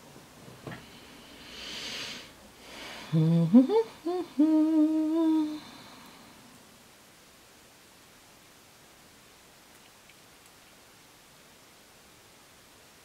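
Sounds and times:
woman humming: 2.9s - 6.2s.

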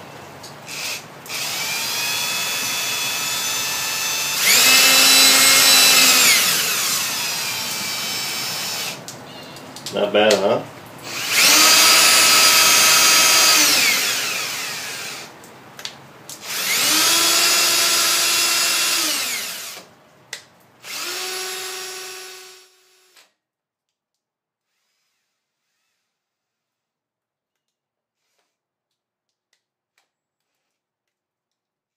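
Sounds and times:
drill motor whining: 0.7s - 9.0s, 11.0s - 15.3s, 16.4s - 19.9s, 20.8s - 23.3s, 24.7s - 26.2s.

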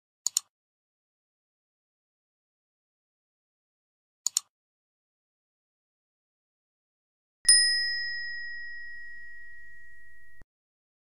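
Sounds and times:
bell ding: 7.5s - 10.4s.

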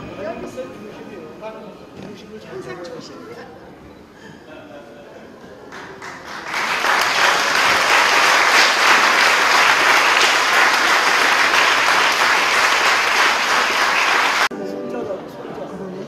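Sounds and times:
audience applauding: 5.7s - 14.5s.

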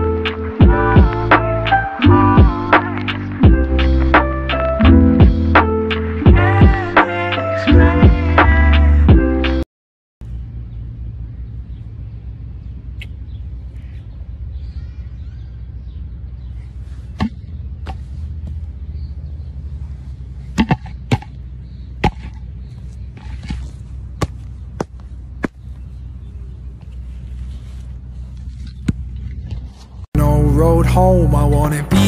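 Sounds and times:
wind rumble on microphone: 25.7s - 30.1s.

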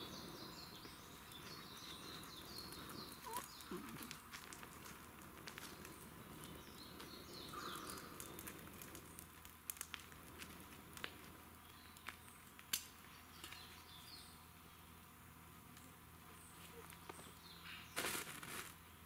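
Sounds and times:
bird chirping: 0.0s - 4.2s, 5.6s - 8.6s, 11.6s - 15.0s
fire crackling: 0.0s - 17.4s.

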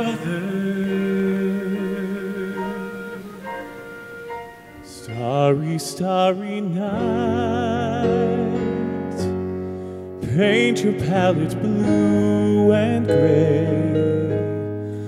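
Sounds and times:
live band accompaniment: 0.0s - 5.8s
man singing with vibrato: 0.0s - 9.4s, 10.1s - 14.9s.

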